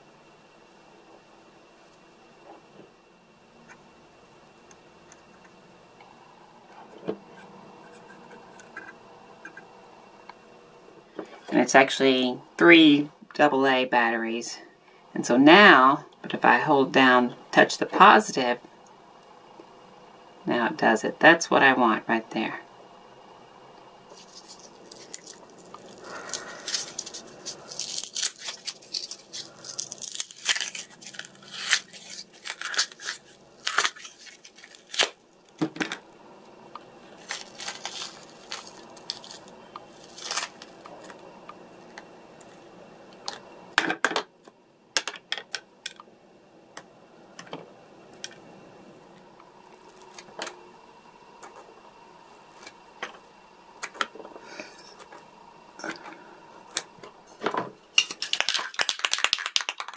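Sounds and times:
silicone mould peeling and crinkling: 24.1s - 35.6s, 36.4s - 43.5s, 49.6s - 50.5s.

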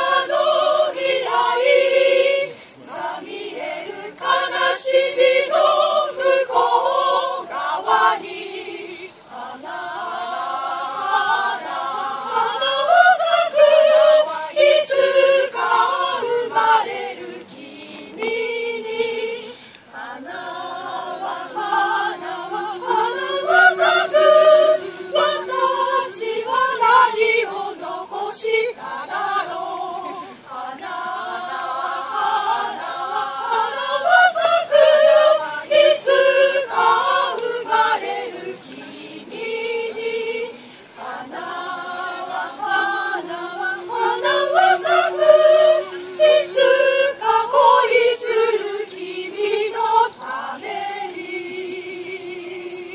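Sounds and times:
choir singing a cappella: 0.0s - 52.9s.

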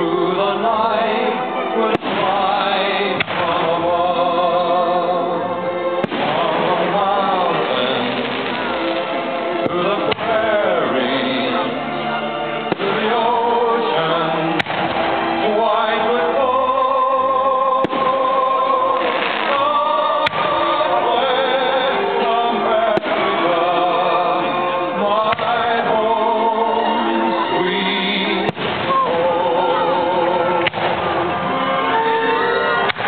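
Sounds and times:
music with singing: 0.0s - 33.0s
firework shells bursting: 14.6s - 15.3s.

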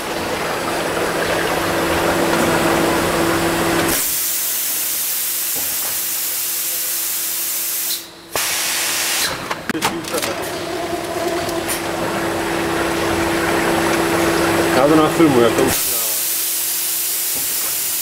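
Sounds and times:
packaging machine humming: 9.1s - 16.2s.

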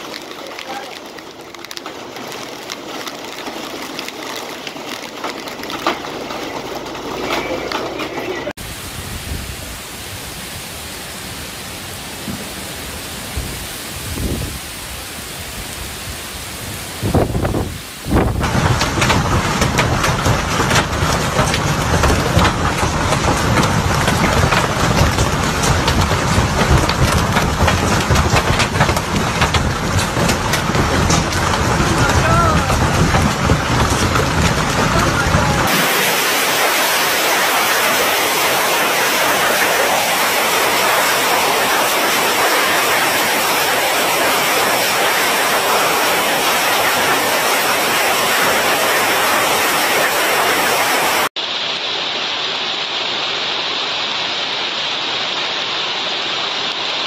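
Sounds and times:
hailstones clattering: 0.0s - 8.6s, 12.1s - 51.3s
torrential rain pouring: 0.0s - 57.0s
heavy low rumble: 5.0s - 36.8s.

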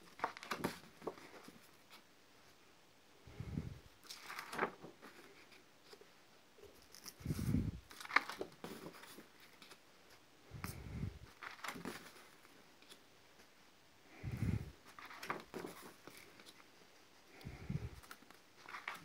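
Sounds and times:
pages turning: 0.0s - 2.0s, 4.0s - 6.0s, 6.7s - 9.8s, 10.6s - 13.0s, 14.8s - 16.7s, 17.9s - 19.0s.

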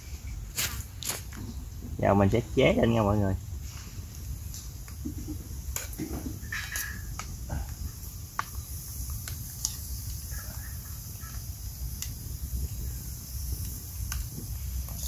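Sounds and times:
steady low rumble: 7.1s - 15.0s.

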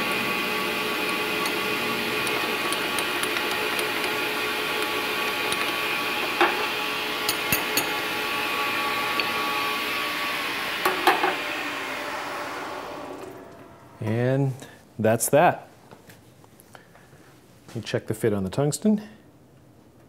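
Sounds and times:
metal lathe motor whine: 0.0s - 14.0s.

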